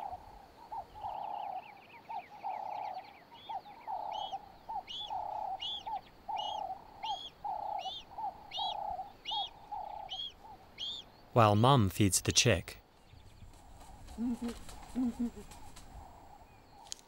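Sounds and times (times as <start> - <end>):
high arching bird chirp: 0.0 - 11.4.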